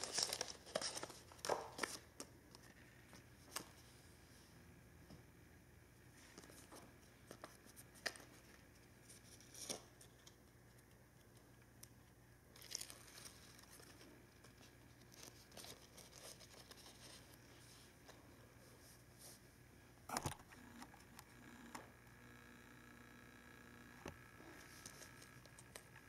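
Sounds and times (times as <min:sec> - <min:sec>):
paper dressing rustling and peeling: 0:00.0 - 0:03.8.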